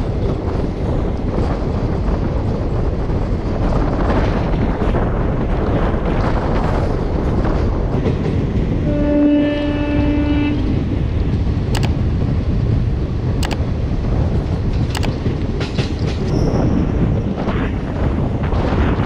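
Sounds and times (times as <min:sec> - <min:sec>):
train rumbling at speed: 0:00.0 - 0:19.0
train horn blast: 0:08.8 - 0:10.9
train wheels clicking: 0:11.0 - 0:12.5, 0:13.3 - 0:19.0.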